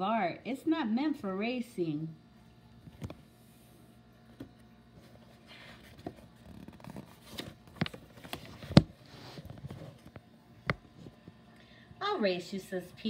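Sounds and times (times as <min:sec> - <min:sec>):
book pages turning: 0:04.4 - 0:11.2
taps and knocks on book: 0:05.9 - 0:09.0.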